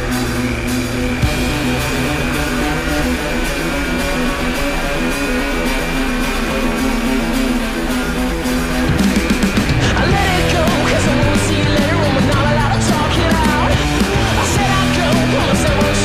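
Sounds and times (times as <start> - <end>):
rock music with electric guitar: 0.0 - 16.0.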